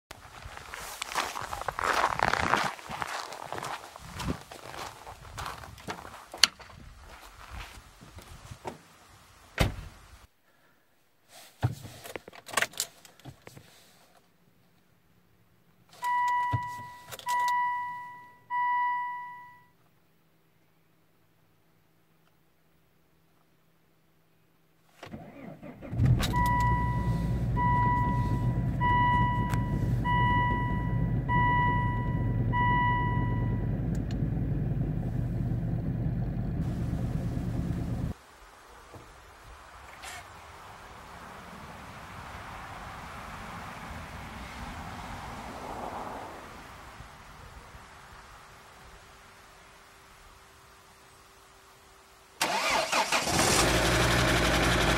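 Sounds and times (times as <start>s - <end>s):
car door closing thump: 9.6s - 9.9s
dashboard warning chime: 16.0s - 19.8s, 26.3s - 33.8s
diesel engine starting and idling: 25.1s - 38.2s, 52.4s - 54.9s.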